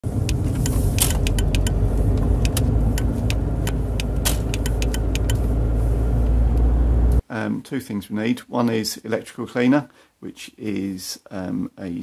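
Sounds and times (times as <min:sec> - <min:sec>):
engine and road noise: 0:00.0 - 0:07.2
indicator relay clicking: 0:00.2 - 0:01.8, 0:02.4 - 0:05.4.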